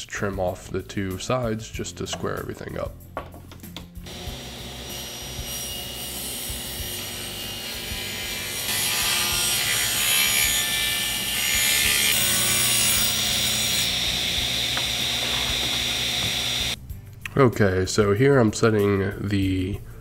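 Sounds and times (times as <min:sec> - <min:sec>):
table saw ripping plywood: 0:08.7 - 0:16.8.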